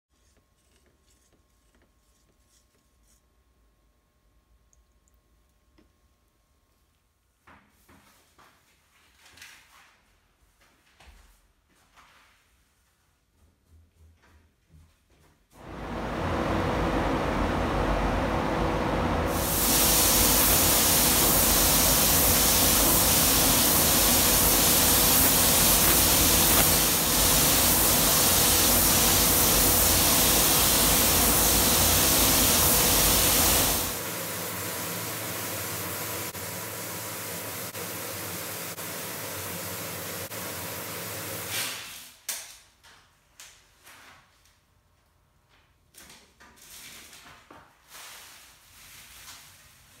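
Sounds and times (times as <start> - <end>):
spray gun hissing: 19.3 - 41.5.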